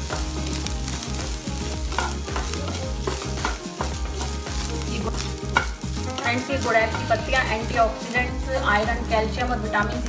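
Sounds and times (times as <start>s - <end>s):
faint sizzling: 0.0s - 10.0s.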